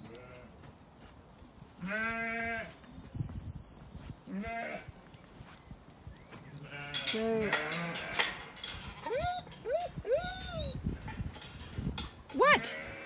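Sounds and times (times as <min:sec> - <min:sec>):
sheep bleating: 0:01.8 - 0:02.7, 0:04.3 - 0:04.9.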